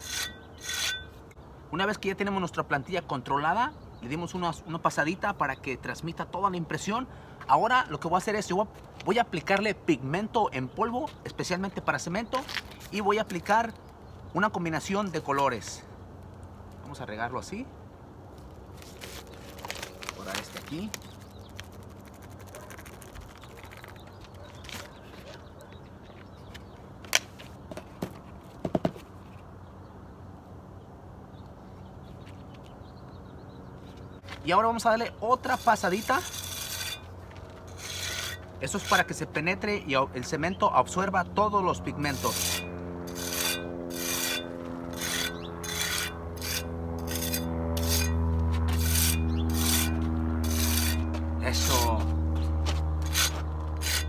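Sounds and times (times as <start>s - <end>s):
trowel scraping over stencil: 0.0s - 1.2s, 35.4s - 37.1s, 37.7s - 39.2s, 42.1s - 52.0s, 53.0s - 54.0s
faint outdoor background: 0.0s - 54.0s
paper bag rustling: 18.4s - 25.4s
steady low hum: 32.7s - 54.0s.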